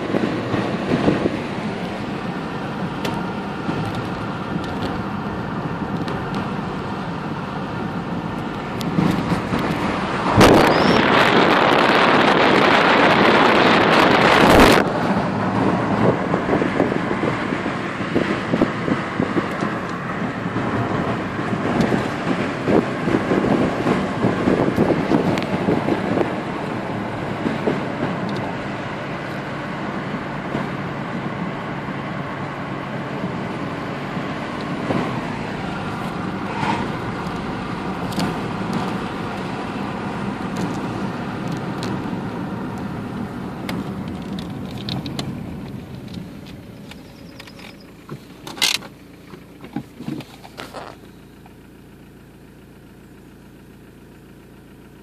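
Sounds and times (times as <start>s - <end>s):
diesel car engine running: 0.0s - 55.0s
tyre and road rush: 0.0s - 55.0s.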